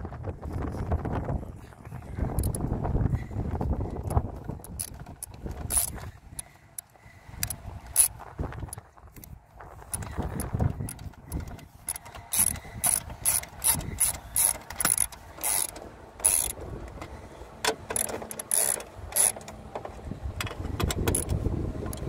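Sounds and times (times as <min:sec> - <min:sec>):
ratcheting screwdriver clicking: 0:02.4 - 0:02.6, 0:04.0 - 0:08.2, 0:09.9 - 0:16.6, 0:17.7 - 0:19.6, 0:20.4 - 0:22.0.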